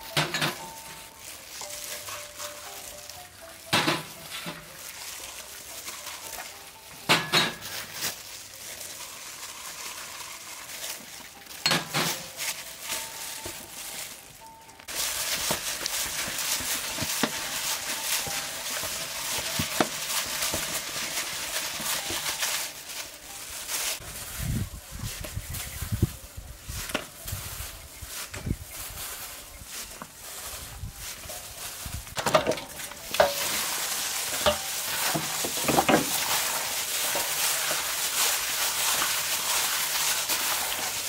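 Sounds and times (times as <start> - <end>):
hand mixing wet paste: 0.8 - 7.1, 7.7 - 24.0, 32.8 - 41.0.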